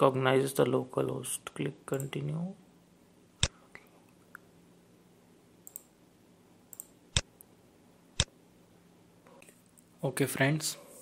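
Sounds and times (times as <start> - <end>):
computer mouse clicks: 5.6 - 5.9, 6.7 - 7.3.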